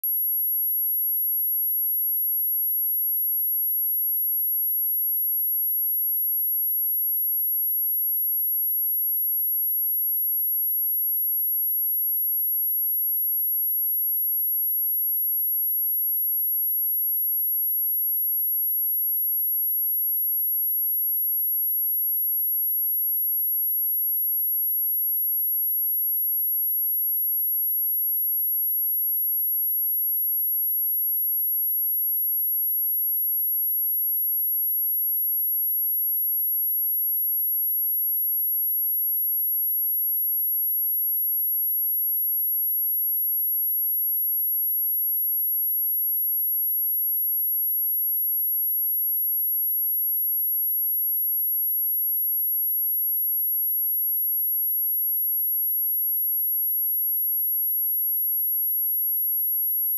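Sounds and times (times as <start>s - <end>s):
high-pitched sine test tone: 0.0s - 1.4s.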